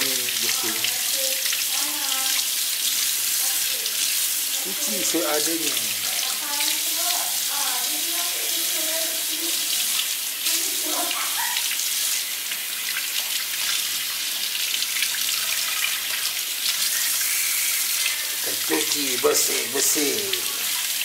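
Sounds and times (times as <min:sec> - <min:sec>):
tap water splashing into sink: 0:00.0 - 0:07.3.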